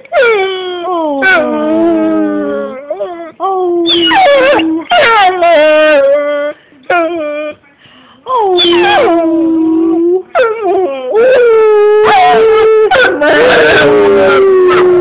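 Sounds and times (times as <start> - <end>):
dog howling and whining: 0.0 - 7.6, 8.3 - 15.0.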